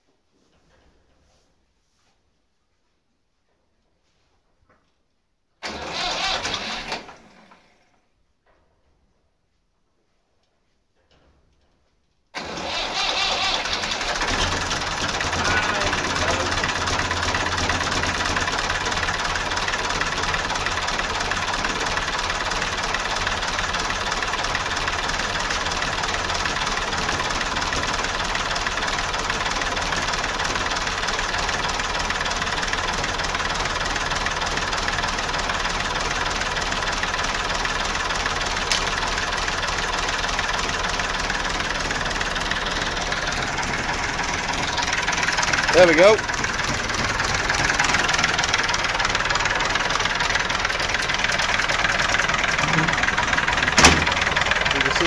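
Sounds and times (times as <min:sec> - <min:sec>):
diesel tractor engine idling: 0:05.6 - 0:07.4, 0:12.4 - 0:55.0.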